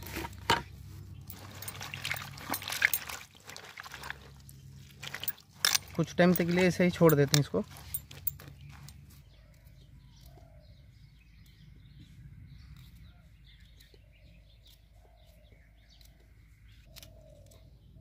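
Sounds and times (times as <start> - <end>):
bird calls: 7.8 - 18.0.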